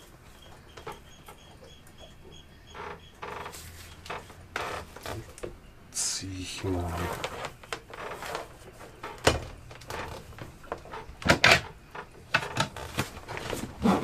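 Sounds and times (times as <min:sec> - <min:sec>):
cables rustling and scraping: 0:06.6 - 0:14.0.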